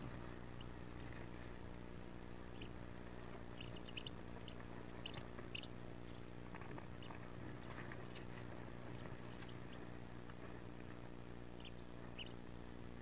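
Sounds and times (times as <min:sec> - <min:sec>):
ducklings peeping: 0:00.0 - 0:13.0
steady low hum: 0:00.0 - 0:13.0.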